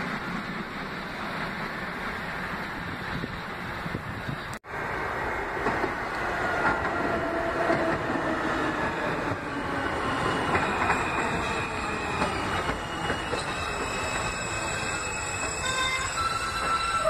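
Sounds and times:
subway train on tracks: 0.0 - 17.0
steel wheel squeal: 10.5 - 17.0.

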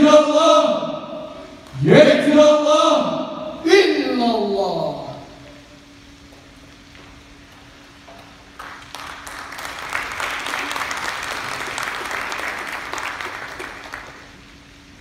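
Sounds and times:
audience applauding: 8.5 - 14.5.

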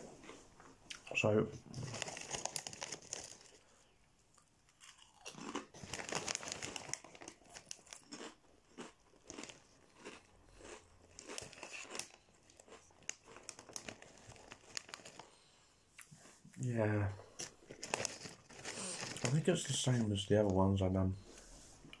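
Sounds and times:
crisps crunching: 1.7 - 15.5, 17.4 - 19.9.

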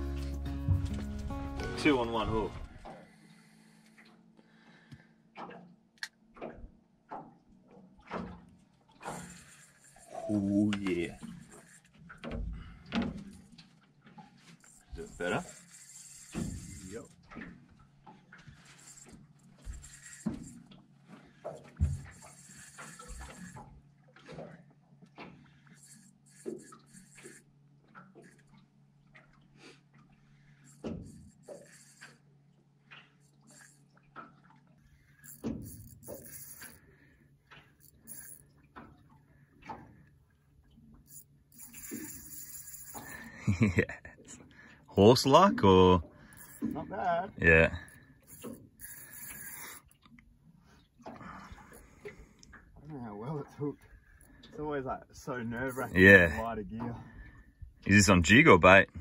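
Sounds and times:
knocks and clicks on boat: 4.9 - 9.3, 10.5 - 15.5, 16.3 - 25.6, 30.7 - 40.2.

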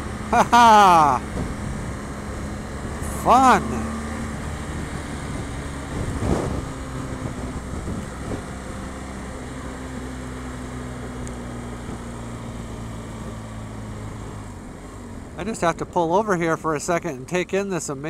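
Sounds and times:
motorcycle engine running: 0.0 - 15.2
wind and road noise: 0.0 - 18.0.

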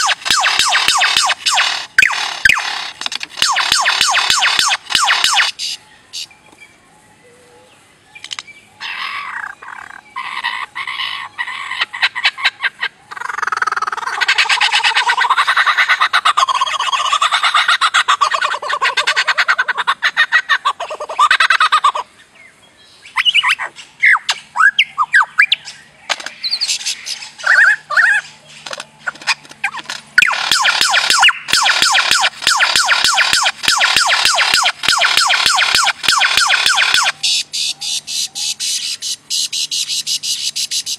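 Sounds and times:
fast-pulsing rattling bird call: 0.0 - 6.3, 8.8 - 22.1, 24.5 - 40.9
bird rapid clicks: 8.2 - 8.5, 28.6 - 37.4.

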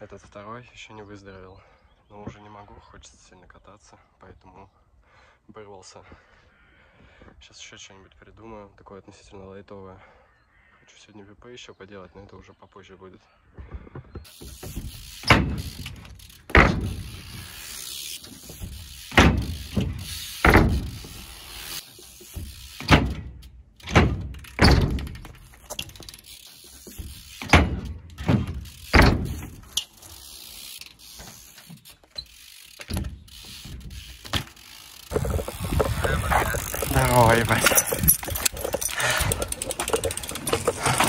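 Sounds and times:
bike clicking and rattling: 13.7 - 41.0
bike wheels thudding on ramps: 14.1 - 41.0.

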